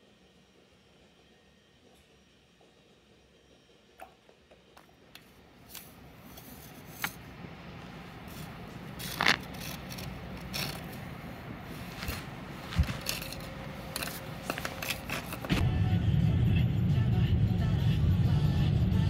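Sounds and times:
plastic shovel scraping snow: 11.8 - 13.4, 14.0 - 15.6.

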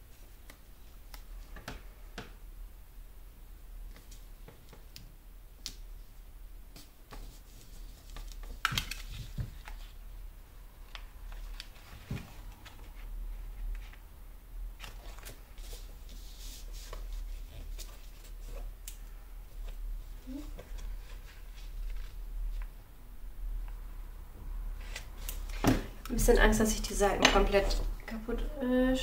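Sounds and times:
paper rustling: 14.8 - 22.8.

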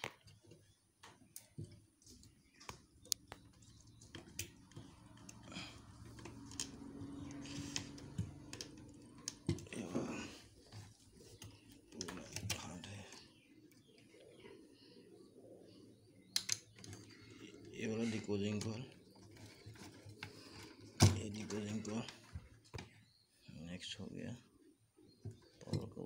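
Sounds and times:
wires and plastic plugs rattling: 0.0 - 14.0, 16.2 - 23.0.

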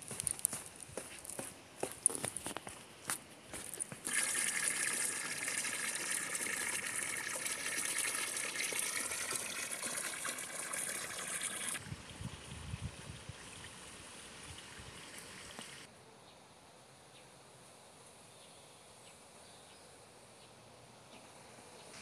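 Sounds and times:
water splashing onto stones: 4.0 - 11.8.

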